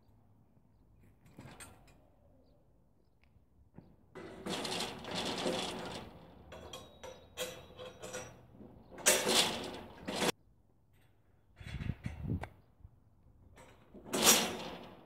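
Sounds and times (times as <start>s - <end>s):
metal parts rattling and clanking: 4.2s - 10.4s, 13.6s - 15.0s.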